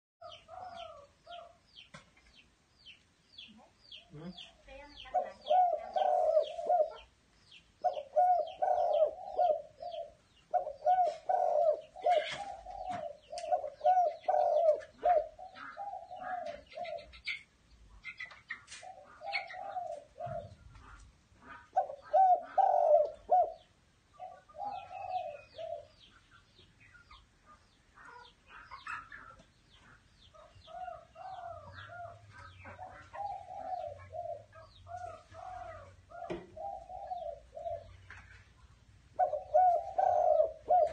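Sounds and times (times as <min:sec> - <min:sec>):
dove cooing: 0:00.2 - 0:01.6, 0:04.0 - 0:07.1, 0:07.8 - 0:17.4, 0:18.1 - 0:26.2, 0:30.4 - 0:38.1, 0:39.1 - 0:40.9.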